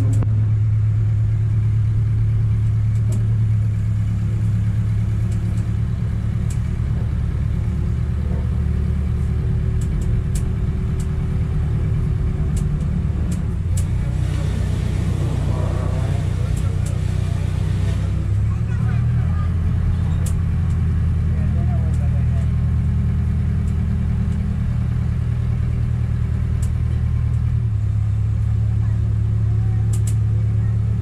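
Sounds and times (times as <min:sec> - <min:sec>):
vehicle engine running: 0:00.0 - 0:31.0
faint light clicks: 0:20.2 - 0:20.8, 0:29.9 - 0:30.2.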